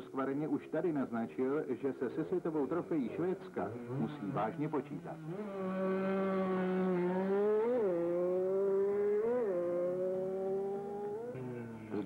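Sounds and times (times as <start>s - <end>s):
motorcycle engine at full throttle: 3.6s - 12.0s.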